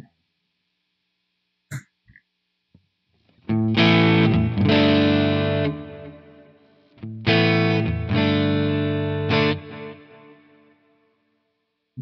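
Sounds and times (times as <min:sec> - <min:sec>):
distorted electric guitar chords: 0:03.5 - 0:10.9.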